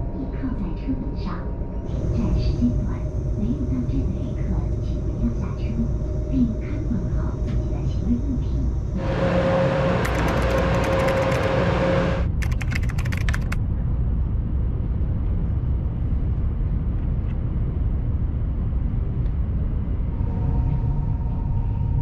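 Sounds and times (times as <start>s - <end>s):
train rumbling: 0.0s - 22.0s
run of sharp clicks: 10.0s - 11.6s.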